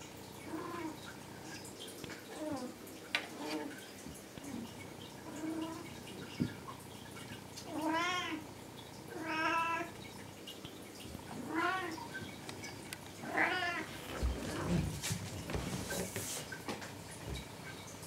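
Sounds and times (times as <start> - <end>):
cat meowing: 13.2 - 13.9.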